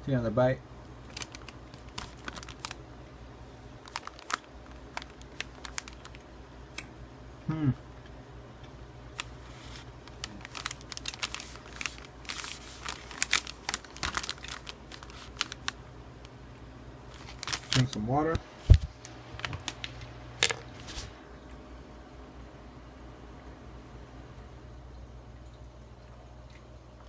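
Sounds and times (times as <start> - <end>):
person humming mm: 7.4 - 7.8.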